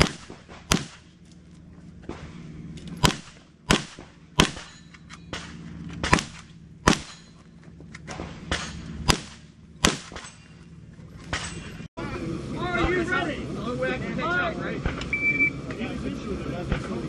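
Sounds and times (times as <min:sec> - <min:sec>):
gunshots: 0:00.0 - 0:01.2, 0:02.1 - 0:07.4, 0:08.1 - 0:10.4.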